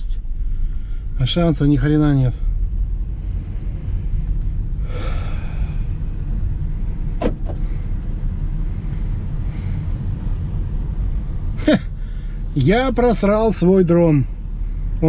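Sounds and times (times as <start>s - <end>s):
car engine and tyres rumbling: 0.0s - 15.0s
breathy sigh: 4.8s - 6.2s.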